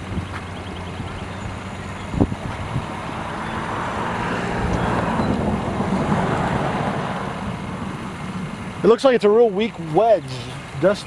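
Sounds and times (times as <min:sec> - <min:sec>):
idling vehicle engine hum: 0:00.0 - 0:11.0
wind rushing past microphone: 0:02.0 - 0:08.6.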